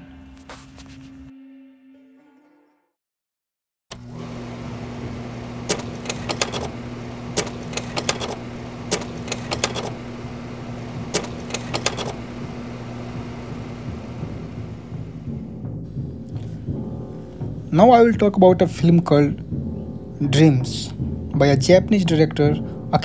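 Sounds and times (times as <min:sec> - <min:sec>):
sharp clicks: 0:03.9 - 0:14.9
low machine hum: 0:03.9 - 0:15.6.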